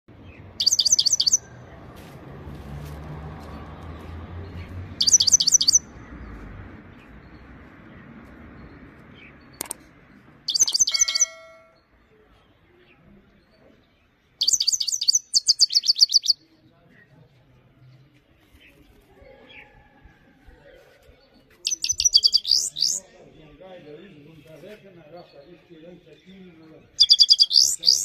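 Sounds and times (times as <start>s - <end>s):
finch twittering song: 0.1s - 1.8s, 4.0s - 16.5s, 21.6s - 23.6s, 25.2s - 28.0s
sharp click: 9.6s - 9.8s.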